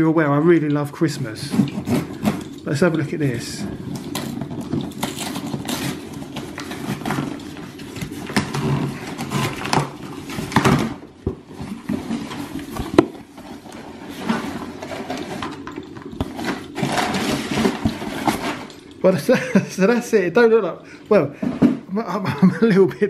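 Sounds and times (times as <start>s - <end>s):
cardboard rustling and scraping: 1.0s - 18.9s.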